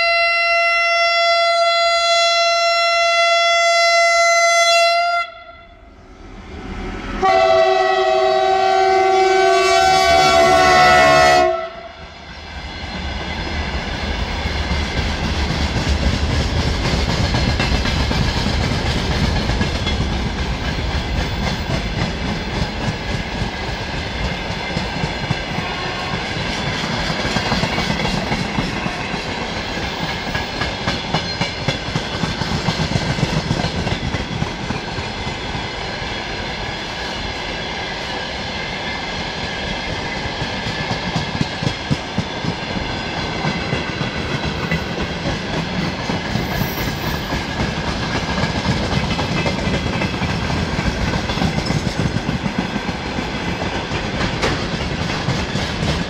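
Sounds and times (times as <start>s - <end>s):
locomotive horn blast: 0.0s - 5.9s, 6.8s - 12.0s
train rumble: 5.3s - 56.0s
train wheels clattering over joints: 14.2s - 35.7s, 39.9s - 56.0s.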